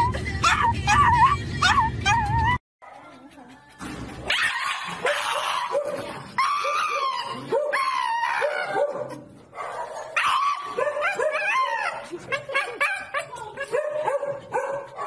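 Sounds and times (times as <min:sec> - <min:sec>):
dog yipping: 0:00.4 - 0:03.4, 0:04.2 - 0:15.0
dog screaming shrilly: 0:04.3 - 0:05.8, 0:06.4 - 0:08.9, 0:10.0 - 0:13.4.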